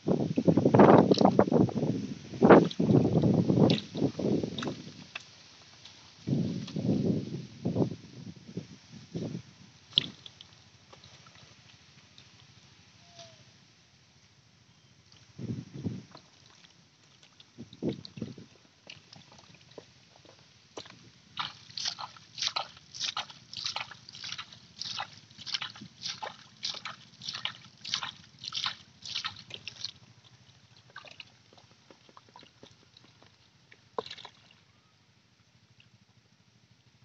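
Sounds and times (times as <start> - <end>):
hands splashing in puddle: 21.4 - 30.0.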